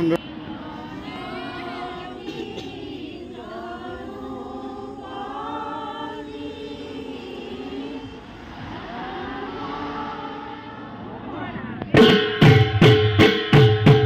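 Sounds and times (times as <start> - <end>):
group chanting in long notes: 0.2 - 12.2.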